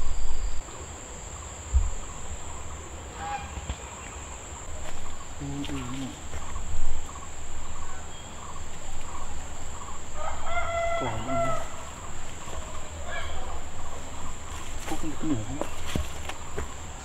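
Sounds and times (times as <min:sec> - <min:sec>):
high-pitched insect drone: 0:00.0 - 0:17.0
low thump: 0:01.7 - 0:02.1
rooster crowing: 0:09.2 - 0:12.0, 0:12.6 - 0:13.7.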